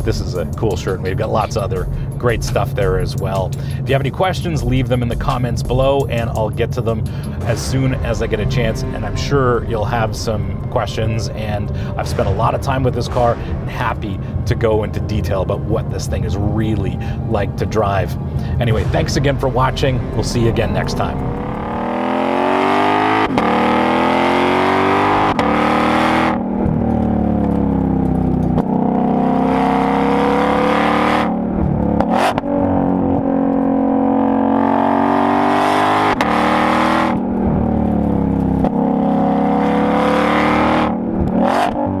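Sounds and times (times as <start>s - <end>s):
car engine accelerating hard: 0.0s - 42.0s
exhaust cracks: 0.0s - 42.0s.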